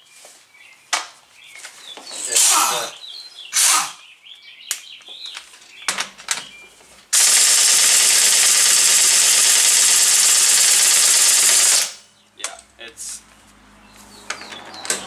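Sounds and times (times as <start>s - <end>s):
air impact wrench hammering: 7.1s - 12.0s.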